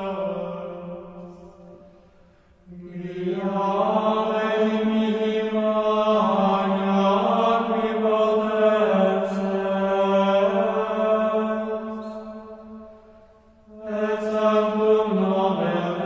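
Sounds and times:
low drone: 0:00.0 - 0:16.0.

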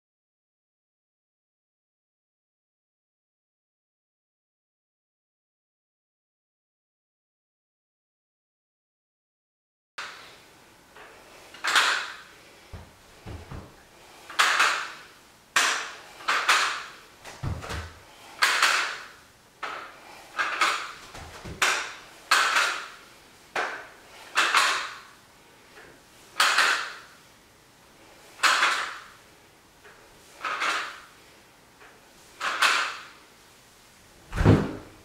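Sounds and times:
dumbbells clacking: 0:10.0 - 0:10.4, 0:11.0 - 0:25.2, 0:25.8 - 0:27.2, 0:28.3 - 0:29.2, 0:29.8 - 0:31.2, 0:31.8 - 0:33.2.

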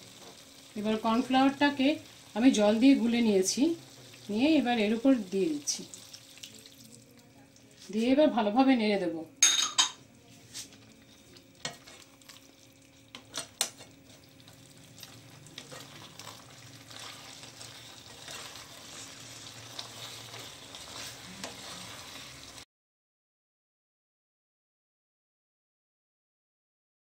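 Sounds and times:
vegetables sizzling in a pan: 0:00.0 - 0:07.1, 0:10.0 - 0:22.7.

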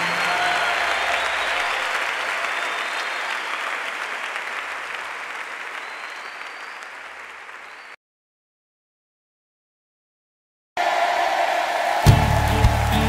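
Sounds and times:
congregation clapping: 0:00.0 - 0:08.0, 0:10.8 - 0:13.0.

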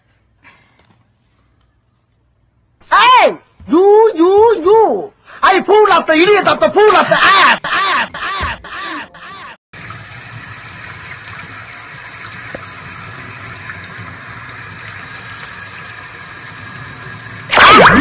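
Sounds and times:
tap water running: 0:09.7 - 0:18.0.

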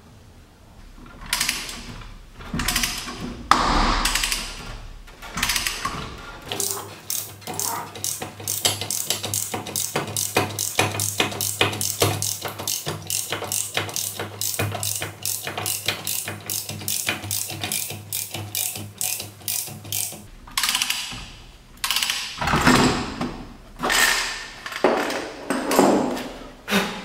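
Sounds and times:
metal clanks and scrapes: 0:01.9 - 0:21.4
ratchet wrench clicking: 0:06.5 - 0:21.2, 0:21.8 - 0:22.4.

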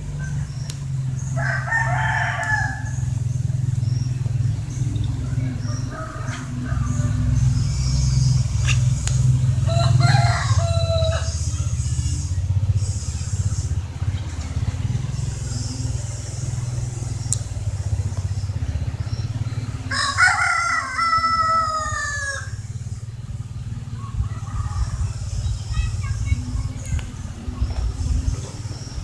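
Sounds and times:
steady low rumble: 0:00.0 - 0:29.0
rooster crowing: 0:01.3 - 0:03.1, 0:05.3 - 0:07.4, 0:09.6 - 0:11.4, 0:19.8 - 0:22.6.

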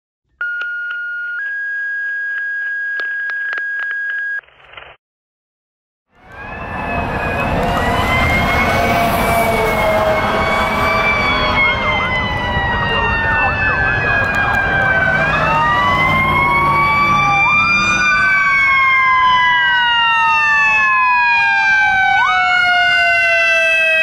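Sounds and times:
fire engine siren: 0:00.4 - 0:04.4, 0:06.1 - 0:24.0
fire engine rumbling: 0:06.1 - 0:24.0.

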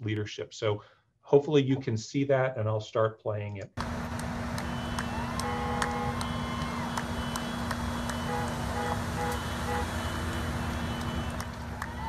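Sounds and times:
vehicles running: 0:03.8 - 0:12.0
siren: 0:04.3 - 0:12.0
short horn honks: 0:04.6 - 0:11.4.

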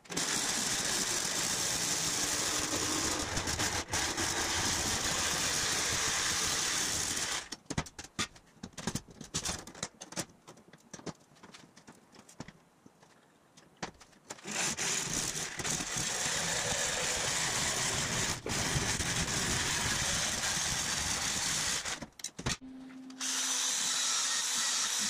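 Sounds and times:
jigsaw cutting steel: 0:00.0 - 0:07.5, 0:14.4 - 0:22.1, 0:23.2 - 0:25.0.

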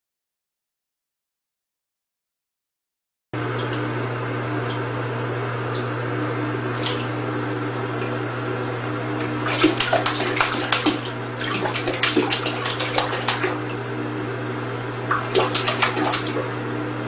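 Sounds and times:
steady low hum: 0:03.4 - 0:17.0
water lapping in a bathtub: 0:03.5 - 0:03.9, 0:06.6 - 0:08.3, 0:08.9 - 0:17.0
cat splashing in water: 0:09.2 - 0:13.9, 0:14.9 - 0:16.6.

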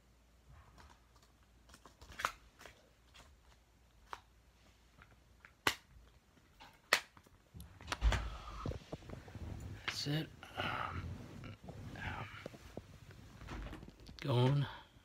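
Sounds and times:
faint handling noise: 0:06.2 - 0:14.8.

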